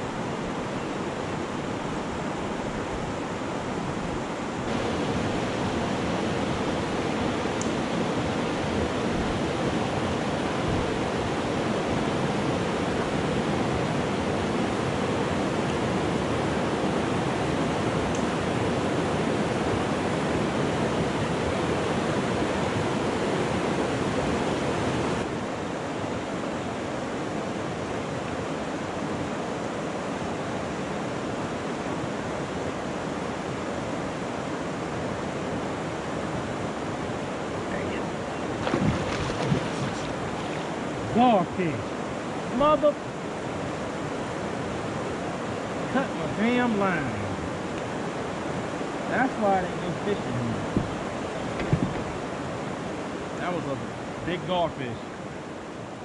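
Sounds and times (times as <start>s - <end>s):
river rapids rushing: 0.0s - 56.0s.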